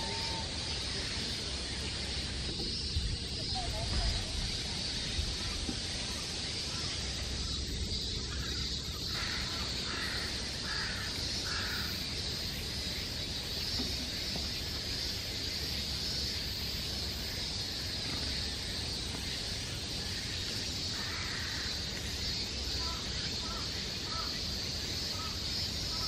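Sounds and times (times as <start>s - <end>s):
steady high-pitched drone: 0.0s - 1.1s
crow cawing: 9.1s - 12.0s, 20.9s - 21.7s, 22.8s - 24.3s.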